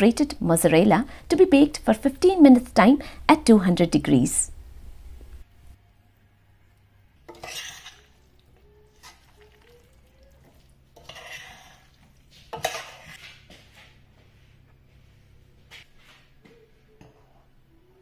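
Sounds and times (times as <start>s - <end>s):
spoon stirring pasta in pot: 7.2s - 13.3s.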